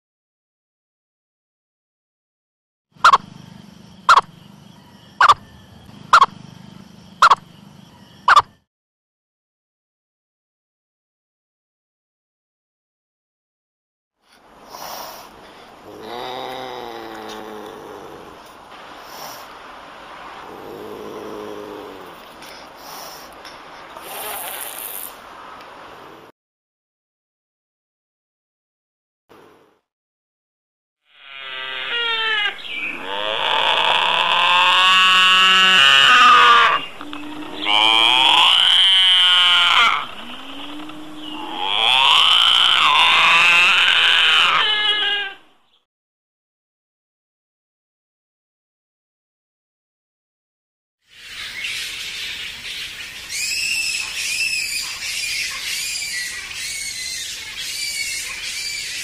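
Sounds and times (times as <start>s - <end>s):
binturong wavering calls: 3.0s - 8.6s, 31.2s - 45.8s, 51.1s - 59.0s
flying foxes squealing: 4.1s - 6.4s, 31.2s - 45.5s, 51.1s - 59.0s
steady hiss: 17.3s - 26.2s.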